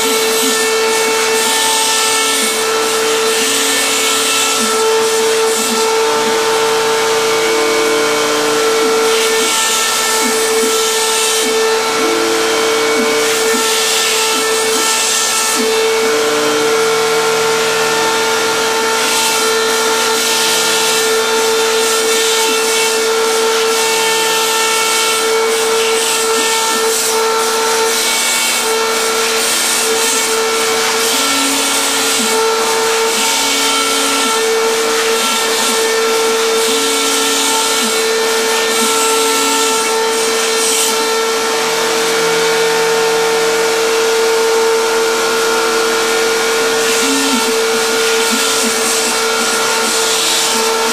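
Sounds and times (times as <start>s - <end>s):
spindle whine: 0.0s - 23.7s, 41.0s - 50.9s
stepper motors humming: 44.0s - 50.9s.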